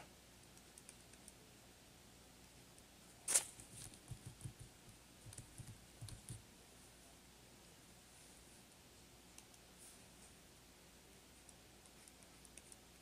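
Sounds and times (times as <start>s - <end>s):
computer mouse clicks: 0.4s - 1.4s, 5.3s - 6.4s, 9.3s - 9.6s, 11.4s - 12.9s.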